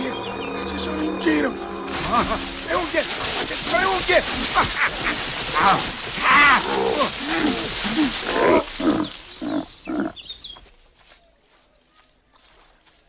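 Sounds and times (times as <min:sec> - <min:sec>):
rustle of earth and leaves: 0:01.7 - 0:13.0
bear growling and roaring: 0:01.9 - 0:10.2.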